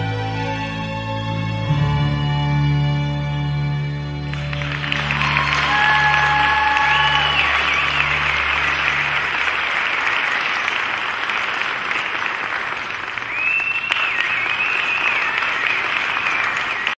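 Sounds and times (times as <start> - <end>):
audience applauding: 4.3 - 17.0
shrill high cheer: 4.3 - 17.0.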